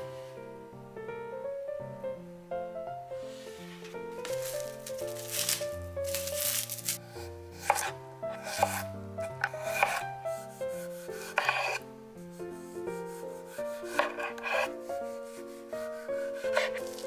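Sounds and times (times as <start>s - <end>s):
light background music: 0.0s - 17.0s
knife slicing on cutting board: 7.6s - 10.0s, 10.8s - 11.8s, 13.1s - 17.0s.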